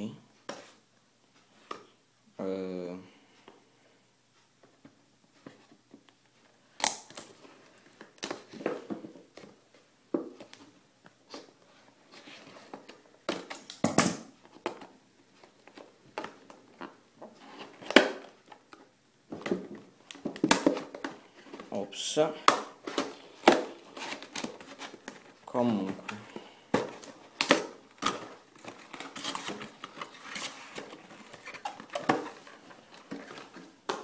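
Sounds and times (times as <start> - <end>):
sharp cardboard snaps: 6.8 - 7.3
paperboard scraping and crackling: 28.0 - 33.7.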